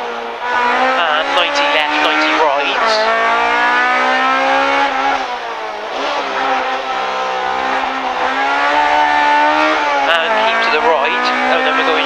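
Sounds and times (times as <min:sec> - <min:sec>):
car engine at high revs: 0:00.0 - 0:12.0.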